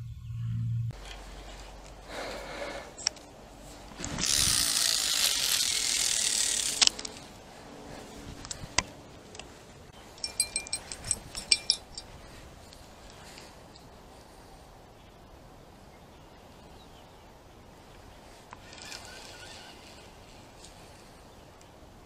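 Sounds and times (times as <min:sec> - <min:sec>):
fishing reel spool whirring: 0:04.0 - 0:07.2, 0:18.6 - 0:20.4
sharp metallic reel clicks: 0:04.1 - 0:07.2, 0:18.6 - 0:20.0.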